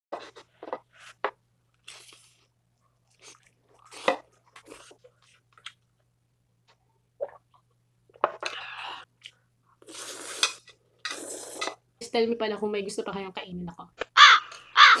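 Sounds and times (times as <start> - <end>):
noodles slurped and chewed: 9.2 - 11.7.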